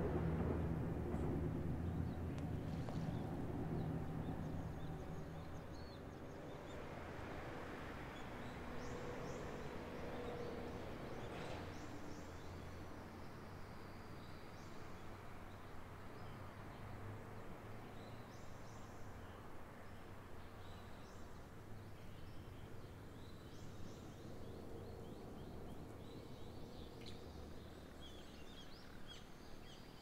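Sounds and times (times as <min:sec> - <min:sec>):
low rumble: 0:00.0 - 0:05.9.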